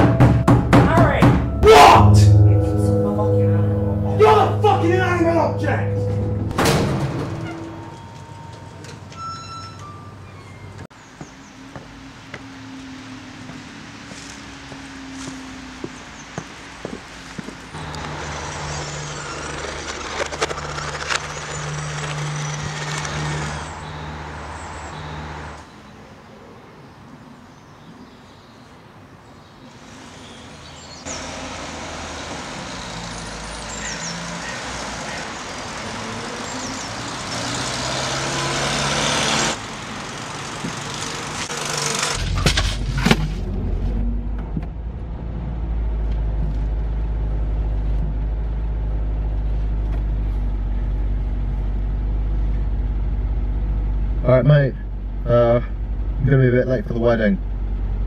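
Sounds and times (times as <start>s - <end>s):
car engine rumbling: 0.0s - 25.7s, 30.0s - 58.0s
traffic going by: 2.1s - 58.0s
clunks: 5.9s - 11.3s.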